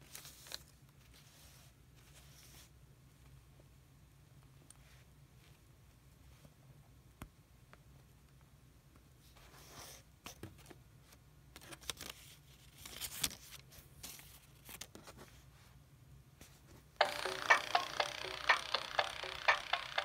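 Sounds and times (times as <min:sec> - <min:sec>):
fingers rubbing plush toy: 0:17.0 - 0:20.0.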